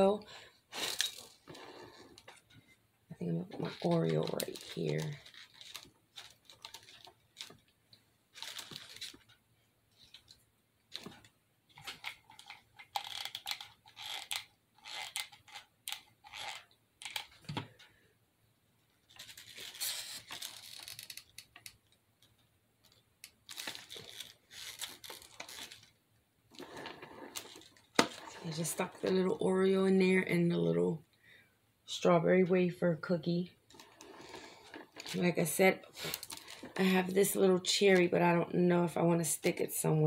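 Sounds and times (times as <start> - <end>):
hands rustling craft pieces: 3.6 - 9.4, 19.0 - 28.8, 33.7 - 37.0.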